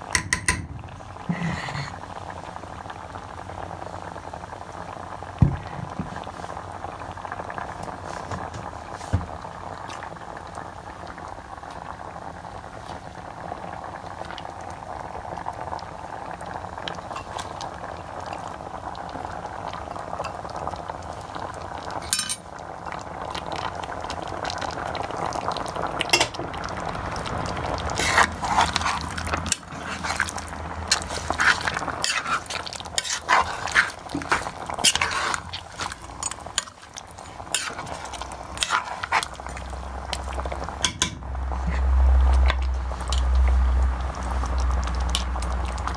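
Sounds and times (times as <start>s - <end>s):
curry bubbling in a pan: 0.0s - 45.9s
spoon scraping a pan: 28.0s - 39.4s.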